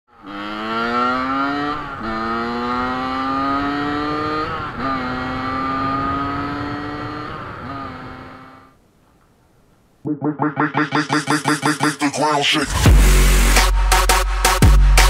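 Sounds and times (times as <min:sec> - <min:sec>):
motorcycle engine accelerating: 0:00.1 - 0:08.8.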